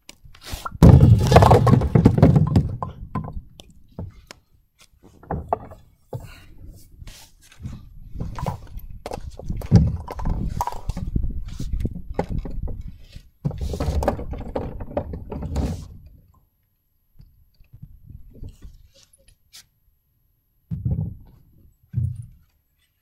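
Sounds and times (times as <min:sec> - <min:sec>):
bowling pins knocked over: 0:00.8 - 0:02.9.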